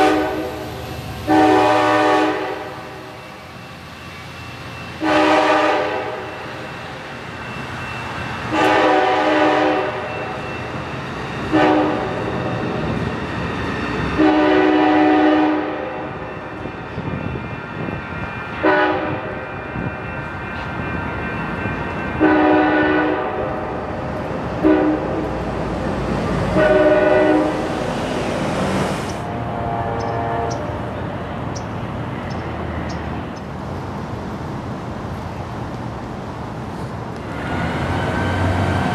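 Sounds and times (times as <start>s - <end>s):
train horn blasts: 0.0s - 0.6s, 1.2s - 3.1s, 5.0s - 6.5s, 8.5s - 10.4s, 11.4s - 12.3s, 14.2s - 16.2s, 18.6s - 19.9s, 22.1s - 23.8s, 24.6s - 25.3s, 26.5s - 27.6s, 29.3s - 30.9s
train running rumble: 0.0s - 38.9s.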